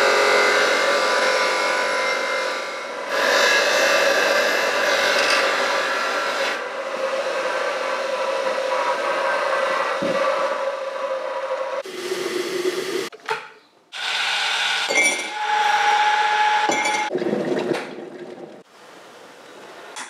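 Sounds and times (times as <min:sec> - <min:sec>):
bench grinder humming: 0:00.0 - 0:12.2.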